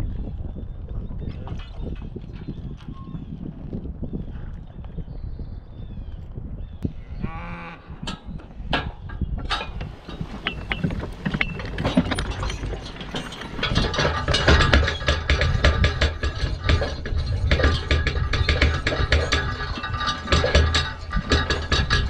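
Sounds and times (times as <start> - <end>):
cow mooing: 6.9 - 8.0
clatter of chains and metal: 9.5 - 22.0.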